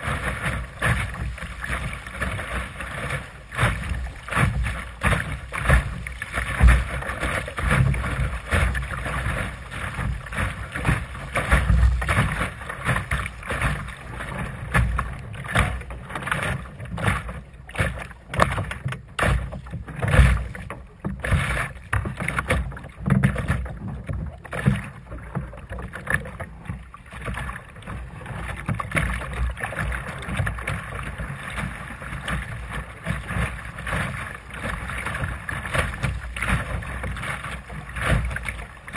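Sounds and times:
water rushing along boat hull: 0.0 - 38.9.

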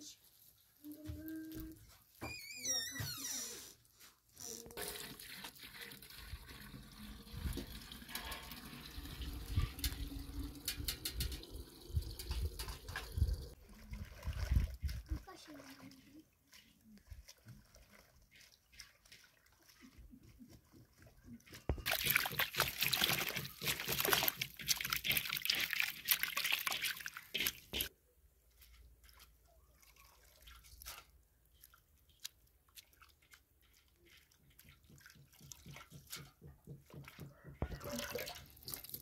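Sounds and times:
water dripping: 4.8 - 14.2, 21.7 - 27.9, 28.6 - 39.0
hands swishing greens in water: 14.2 - 36.3.

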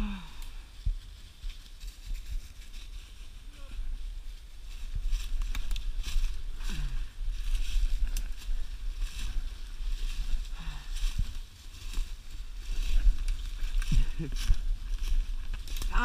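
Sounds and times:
wind rumble: 0.0 - 16.0
footsteps through dry leaves: 0.6 - 16.0.

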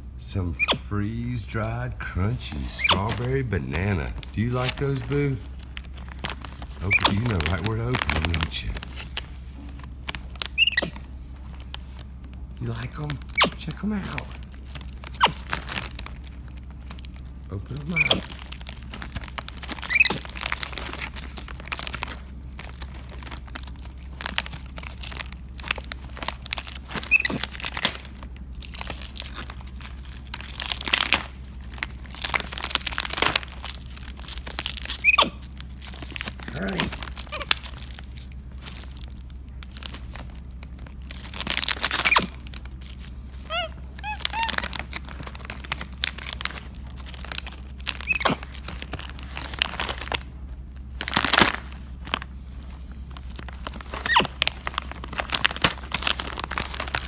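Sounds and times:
plastic snack bag crinkling: 0.4 - 57.0
monkey squeaks: 0.6 - 0.8, 2.8 - 3.2, 6.8 - 7.4, 10.5 - 11.0, 13.3 - 13.6, 15.1 - 15.4, 17.9 - 18.3, 19.8 - 20.4, 27.0 - 27.4, 34.9 - 35.4, 41.9 - 42.4, 43.4 - 44.7, 48.0 - 48.4, 54.0 - 54.3.

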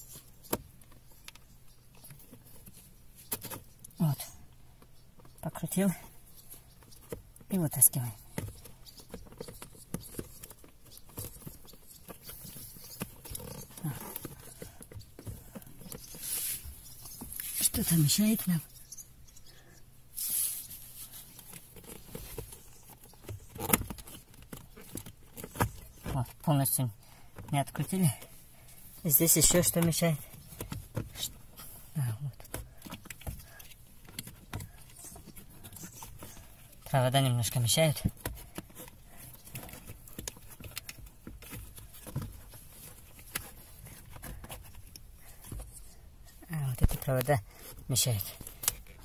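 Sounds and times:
rustling of plastic and wiring: 6.1 - 18.2, 20.2 - 26.4, 27.0 - 49.0
plastic rustling and scraping: 8.2 - 18.0, 20.1 - 26.2.

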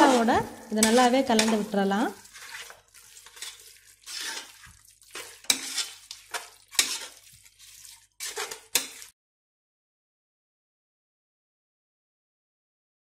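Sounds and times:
spatula knocking metal pot: 0.0 - 1.7
spatula scraping metal pot: 0.0 - 9.2.

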